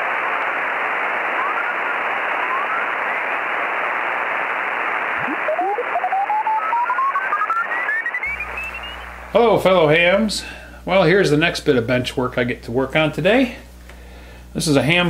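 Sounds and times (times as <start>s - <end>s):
radio static hiss: 0.0s - 11.0s
rising whistling tones: 5.2s - 9.1s.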